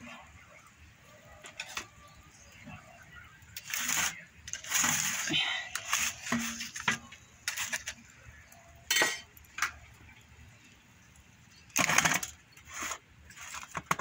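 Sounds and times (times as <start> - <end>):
metal cookware clinking and scraping: 1.4 - 2.5, 3.6 - 8.1, 8.8 - 9.8.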